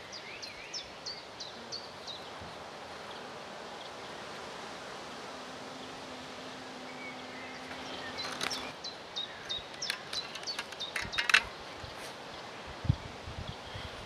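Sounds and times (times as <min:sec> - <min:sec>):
background noise: 0:00.0 - 0:14.0
light wooden clicks and knocks: 0:09.6 - 0:11.6.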